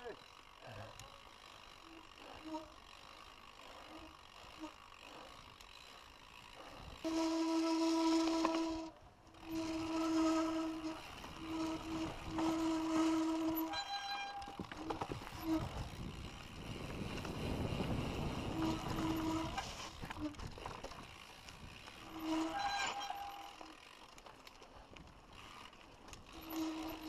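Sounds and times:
bike freewheel buzzing: 0.0s - 27.0s
tyres rumbling on dirt trail: 0.0s - 27.0s
wind noise: 14.5s - 23.2s.

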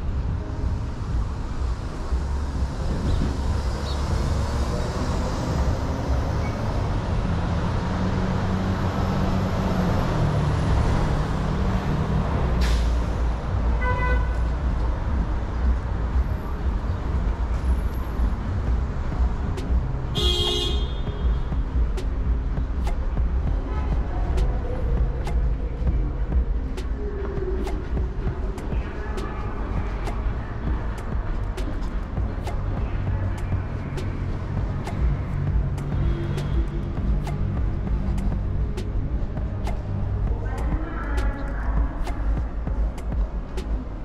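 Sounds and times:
city street traffic rumble: 0.0s - 44.0s
vehicle horn honking: 13.8s - 14.4s, 20.1s - 21.3s.

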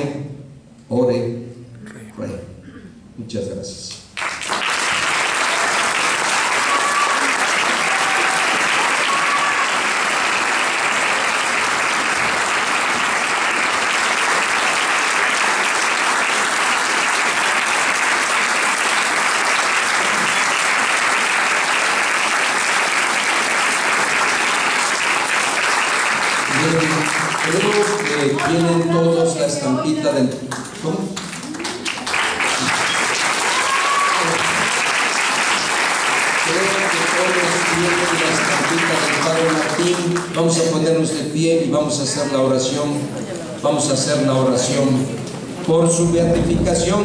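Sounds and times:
audience applause: 4.2s - 28.9s, 30.5s - 40.8s.

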